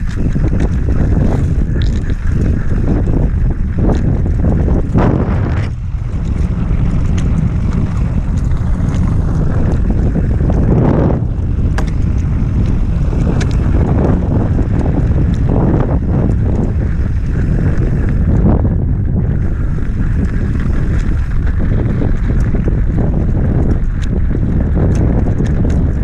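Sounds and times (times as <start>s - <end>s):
bike ticking and rattling: 0.0s - 26.0s
tyres on loose dirt and stones: 0.0s - 26.0s
wind buffeting microphone: 0.0s - 26.0s.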